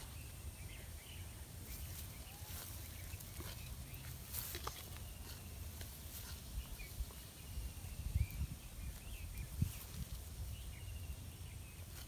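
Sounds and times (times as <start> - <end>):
faint bird chirps: 0.0 - 12.0
wind rumble on microphone: 6.0 - 12.0.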